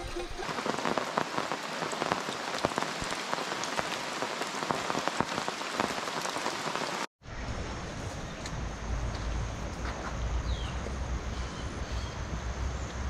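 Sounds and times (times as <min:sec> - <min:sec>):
rain falling on foliage: 0:00.0 - 0:07.1
raindrops striking a tarp: 0:00.0 - 0:07.1.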